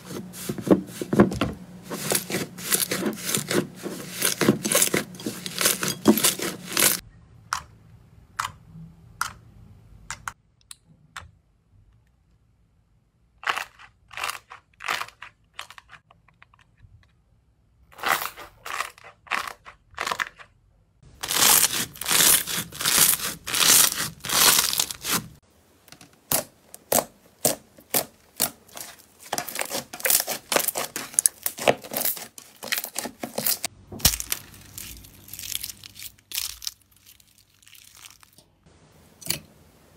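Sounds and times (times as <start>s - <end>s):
slime squelching: 0.0s - 7.0s, 21.1s - 25.4s, 26.2s - 38.6s.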